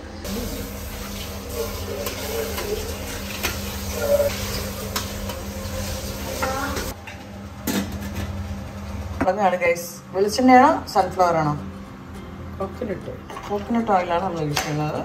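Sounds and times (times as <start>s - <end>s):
steel cookware clinking: 1.0s - 6.9s.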